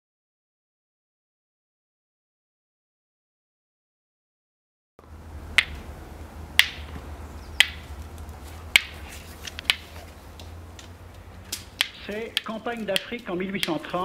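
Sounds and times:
low steady hum: 0:05.0 - 0:14.0
sharp snaps: 0:05.5 - 0:05.8, 0:06.6 - 0:07.0, 0:07.6 - 0:14.0.

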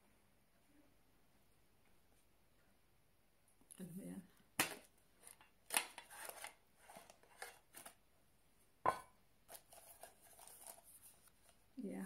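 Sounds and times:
plastic and paper rustling: 0:04.8 - 0:08.0, 0:09.5 - 0:11.8.

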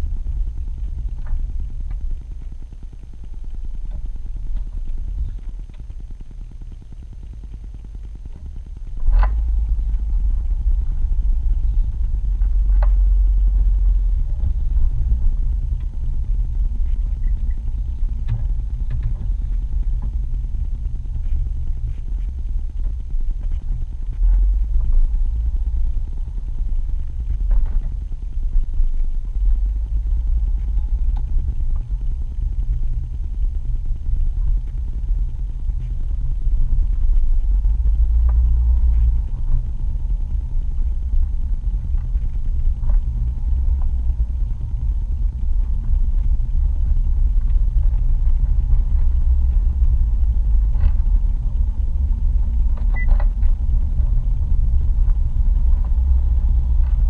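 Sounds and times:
car driving rumble from cabin: 0:00.0 - 0:57.0.

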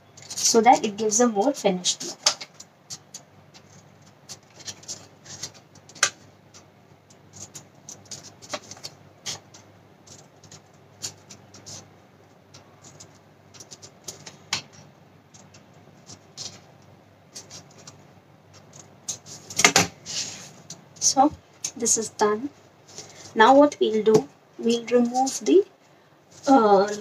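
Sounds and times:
scissors snipping paper: 0:01.9 - 0:11.9, 0:17.3 - 0:19.9.

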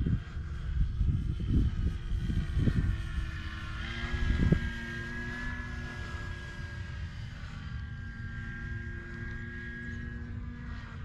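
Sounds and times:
wind buffeting microphone: 0:00.0 - 0:07.4
model plane motor whine: 0:00.0 - 0:11.0.

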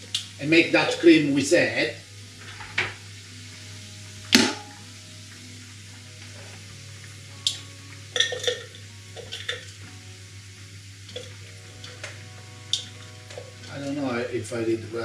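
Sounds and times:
utensil scraping frying pan: 0:06.2 - 0:06.8, 0:11.1 - 0:14.4.

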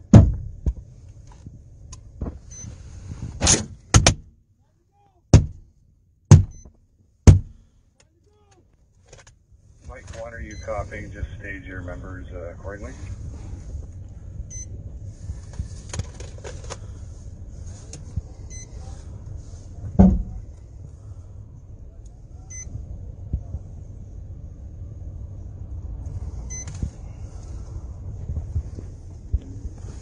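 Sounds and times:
low steady rumble: 0:00.0 - 0:30.0
heavy thud on windshield: 0:00.1 - 0:00.8, 0:05.3 - 0:05.7, 0:06.3 - 0:06.6, 0:07.3 - 0:07.6, 0:20.0 - 0:20.4.

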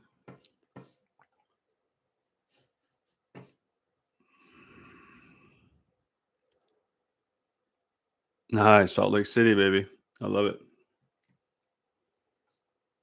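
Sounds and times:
soft breath close to microphone: 0:04.1 - 0:05.9.

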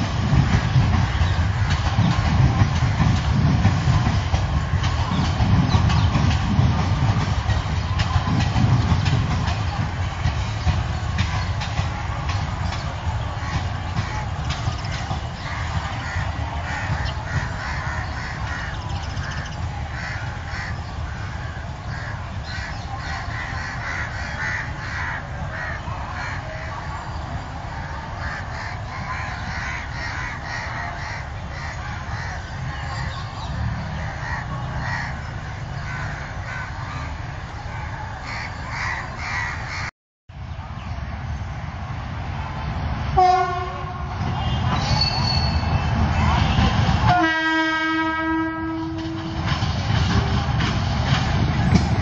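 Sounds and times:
crows cawing: 0:15.4 - 0:26.4, 0:34.0 - 0:37.2, 0:37.8 - 0:39.9.

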